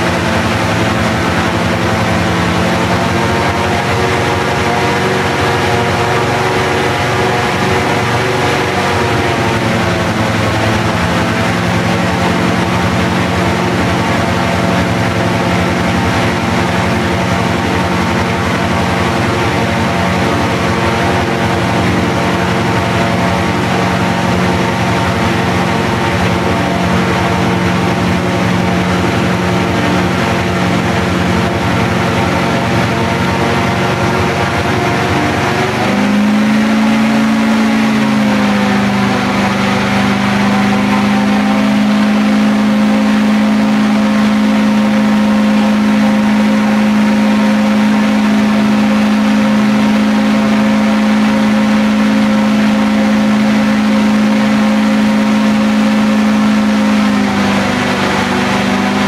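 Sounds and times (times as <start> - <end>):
airboat engine and propeller: 0.0 - 59.0.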